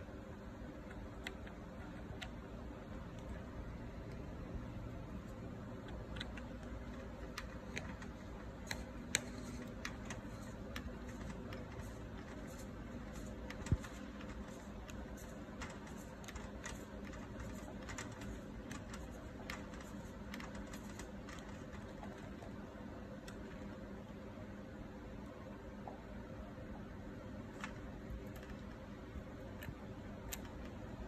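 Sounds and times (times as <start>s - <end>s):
steady low hum: 0.0s - 31.0s
small clicks and ticks: 5.7s - 23.9s, 27.5s - 31.0s.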